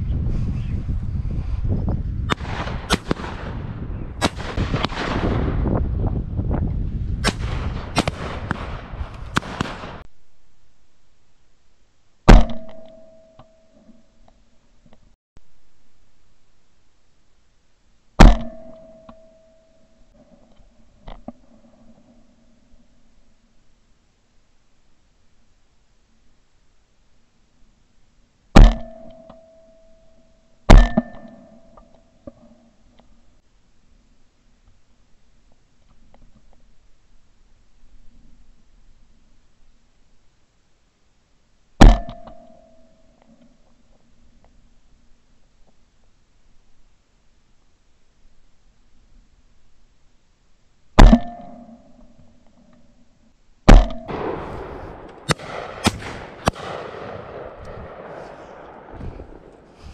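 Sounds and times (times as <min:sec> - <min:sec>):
loud close shotgun blast: 0:02.3 - 0:05.8, 0:07.2 - 0:10.0, 0:53.7 - 0:59.9
shotgun shots: 0:02.3 - 0:05.8, 0:07.2 - 0:10.1, 0:53.7 - 0:59.9.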